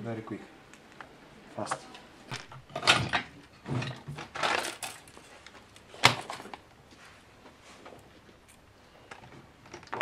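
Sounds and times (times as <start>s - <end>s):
small objects rustling and clattering: 2.3s - 10.0s.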